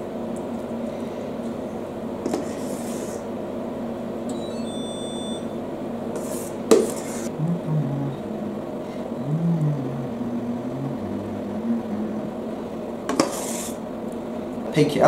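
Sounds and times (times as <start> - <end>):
low hum: 7.2 - 14.7.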